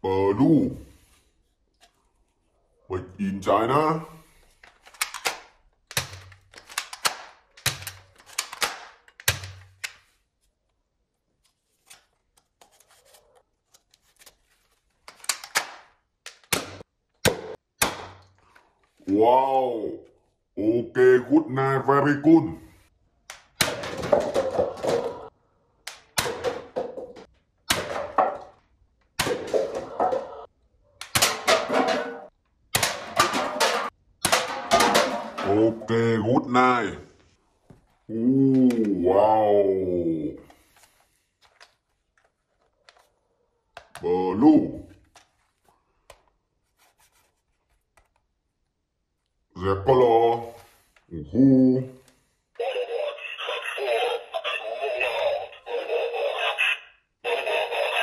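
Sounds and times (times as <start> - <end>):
paper cups clattering: 23.7 - 25.3.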